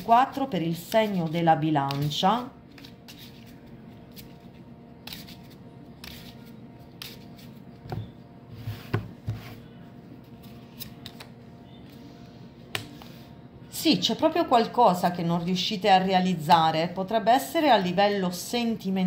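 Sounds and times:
faint steady hum: 0.0 - 19.0
playing cards shuffled: 2.7 - 7.6, 10.3 - 12.1.

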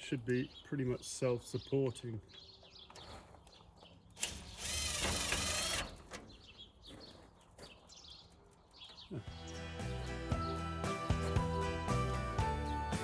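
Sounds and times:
cordless drill driving screw: 4.2 - 6.1.

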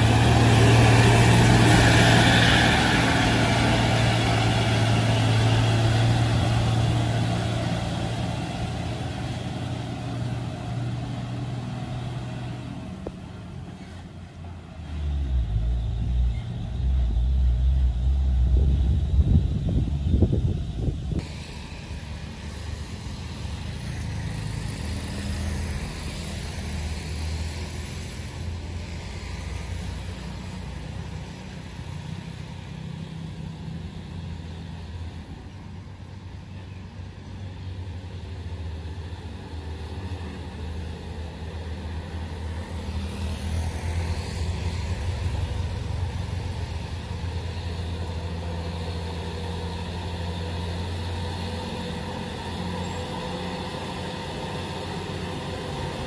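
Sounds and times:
diesel truck engine droning: 0.0 - 56.0.

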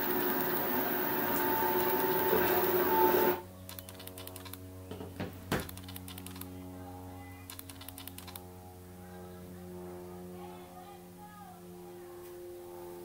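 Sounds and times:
electrical hum: 0.0 - 10.2.

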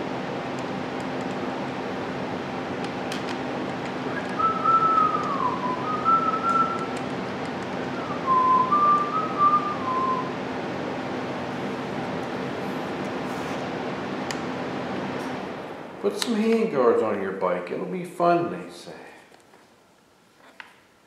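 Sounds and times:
person whistling a tune: 4.1 - 6.9, 8.0 - 10.3.

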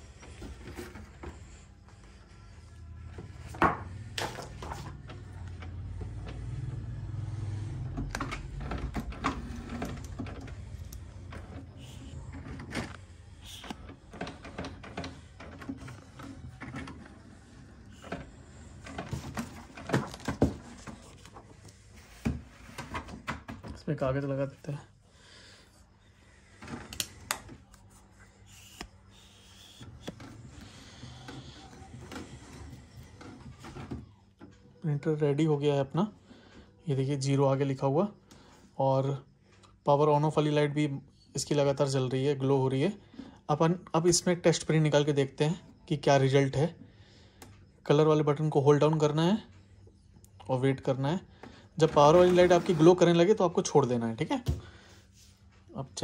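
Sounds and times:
printer motors humming: 0.0 - 22.8.

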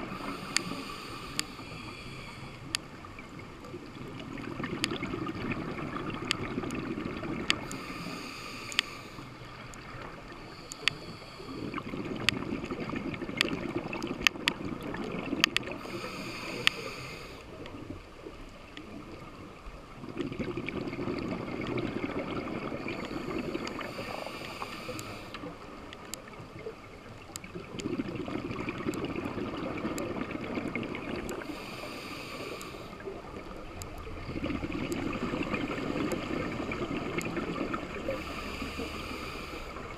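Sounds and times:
regulator inhale hiss: 0.0 - 2.9, 7.6 - 11.9, 15.7 - 17.6, 22.8 - 25.8, 31.3 - 33.2, 37.9 - 39.9
exhaled bubbles rumbling: 3.0 - 7.7, 11.6 - 15.8, 19.0 - 24.1, 25.5 - 31.6, 33.0 - 38.3.

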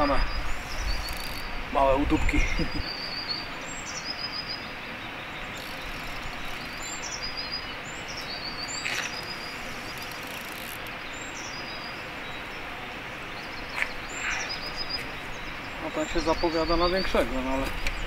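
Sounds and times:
background hiss: 0.0 - 18.0
songbird singing: 0.0 - 18.0.

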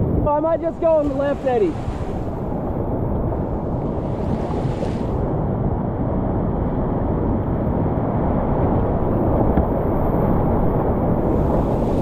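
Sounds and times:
whitewater rapids rushing: 0.3 - 4.6.

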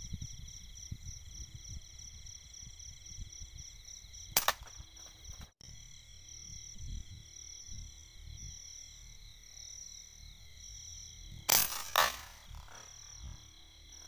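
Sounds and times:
night insects chirping: 0.0 - 14.0
air gun shot: 4.4 - 4.8, 11.5 - 12.9.

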